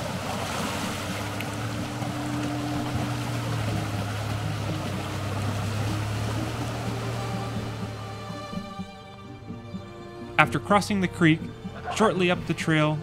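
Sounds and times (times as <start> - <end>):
truck engine running: 0.0 - 13.0
water rushing: 0.0 - 13.0.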